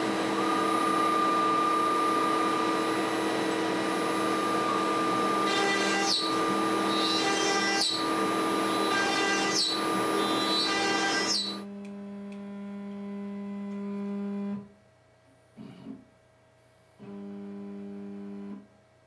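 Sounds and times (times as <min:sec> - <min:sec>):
router spindle whining: 0:00.0 - 0:11.7
steady machine hum: 0:00.0 - 0:16.3.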